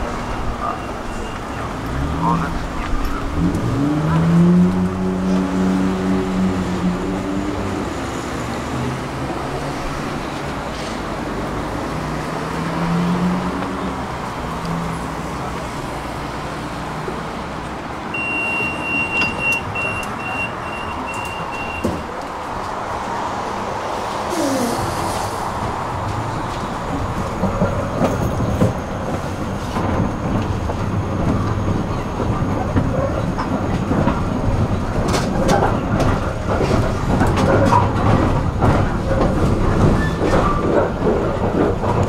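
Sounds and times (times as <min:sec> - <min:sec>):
street and traffic noise: 0:00.0 - 0:42.0
tram door warning beeps: 0:00.1 - 0:01.9, 0:18.1 - 0:22.2.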